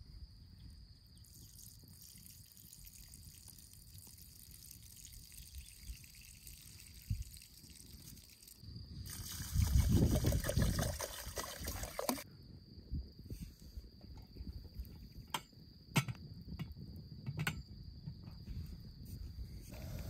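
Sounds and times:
water pouring and splashing: 1.2 - 12.2
metal pot knocks and clinks: 15.2 - 17.6.

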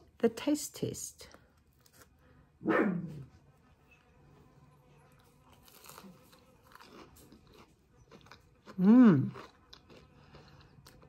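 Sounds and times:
crunching bite into fritter: 5.1 - 11.0.

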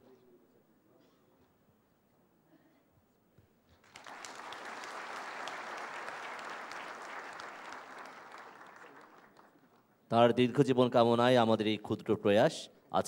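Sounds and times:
audience applause: 3.8 - 9.8.

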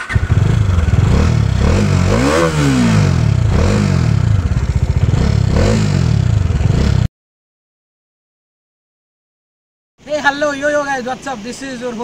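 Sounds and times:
motorcycle engine revving: 0.0 - 7.1.

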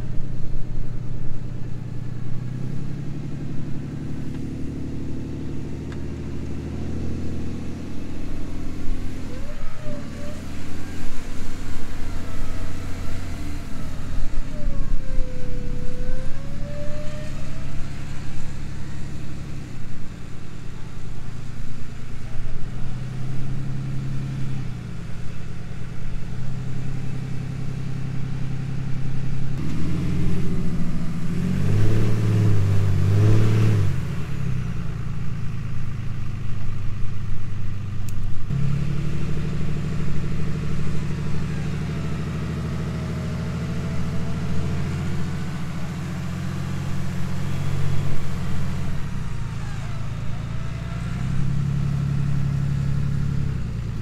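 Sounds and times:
vehicle engine revving under load: 1.9 - 36.2, 38.1 - 54.0.

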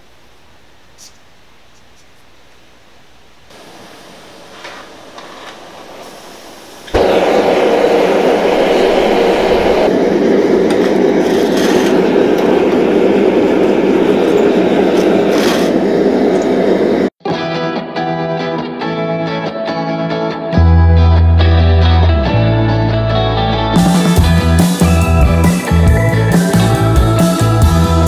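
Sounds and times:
burner igniting whoomp: 3.5 - 17.2, 23.8 - 28.0
gas forge roaring: 3.5 - 17.2, 23.8 - 28.0
gas torch hissing: 3.5 - 17.2.

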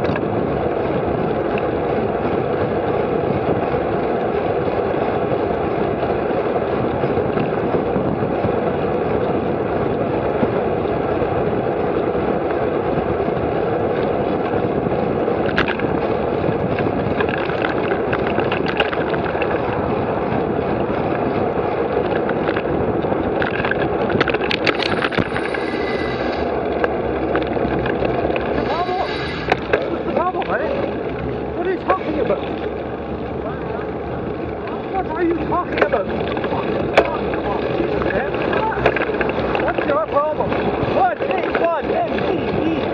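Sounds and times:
bike clicks and rattles: 0.0 - 42.9
road noise: 0.0 - 42.9
wind rushing: 18.0 - 33.2.

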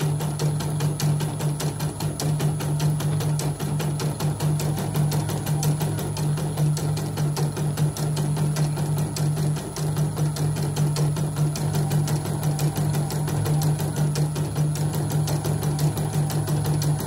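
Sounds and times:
embroidery machine stitching: 0.0 - 17.0.

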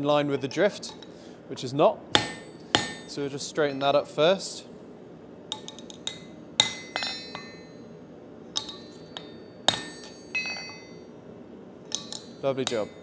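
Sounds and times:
hammer striking steel: 2.2 - 3.8, 5.5 - 7.8, 8.6 - 11.0, 11.9 - 13.0.

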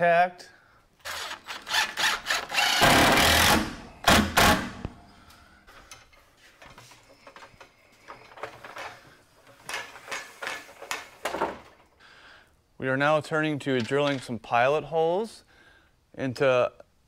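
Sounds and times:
impact driver driving a screw: 1.0 - 5.0.

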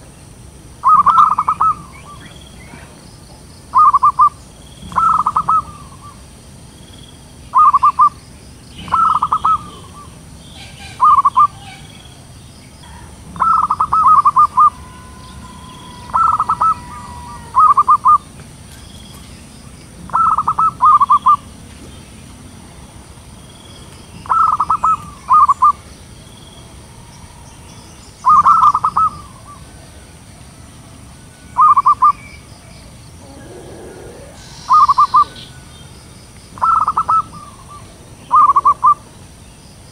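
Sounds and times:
doves cooing: 0.8 - 3.0, 3.7 - 6.3, 8.8 - 18.6, 20.0 - 21.7, 24.2 - 39.1.

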